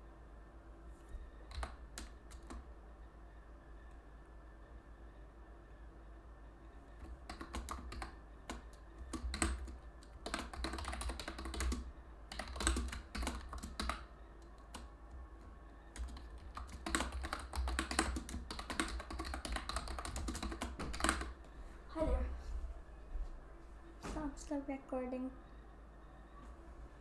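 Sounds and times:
computer keyboard typing: 1.3s - 2.7s, 7.0s - 21.4s.

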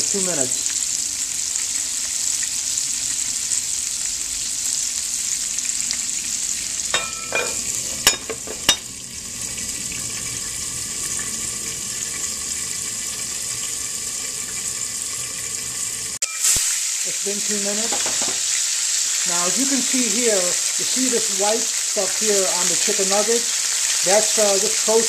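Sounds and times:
chicken sizzling in a frying pan: 0.0s - 25.0s
metal lid scraping and clinking: 7.0s - 8.9s.

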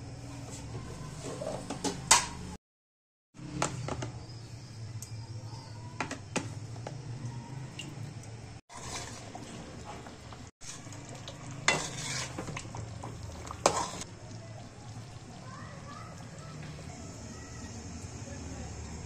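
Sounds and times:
food sizzling: 7.6s - 19.0s
metal spatula scraping a pan: 8.7s - 14.1s.

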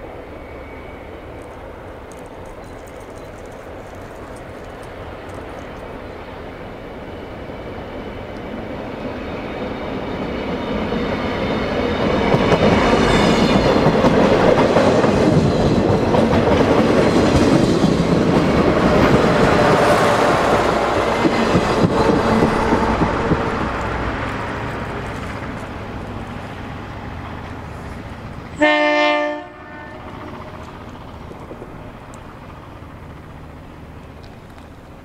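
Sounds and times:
train wheels clacking on rails: 7.5s - 35.0s.

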